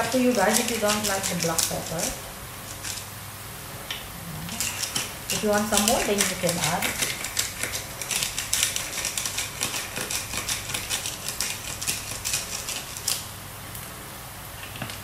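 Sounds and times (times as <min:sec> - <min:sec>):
pepper grinder crunching: 0:00.0 - 0:03.1, 0:04.4 - 0:13.3.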